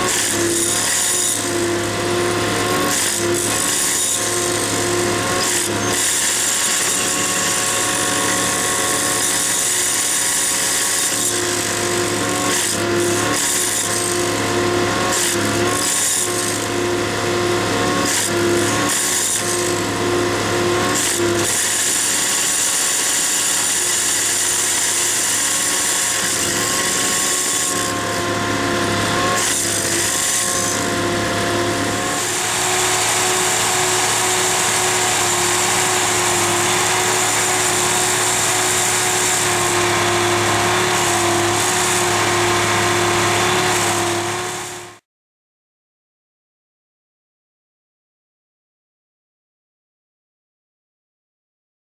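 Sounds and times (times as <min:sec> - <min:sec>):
tamping tools buzzing: 0:00.0 - 0:45.0
machine engine running: 0:19.3 - 0:44.9.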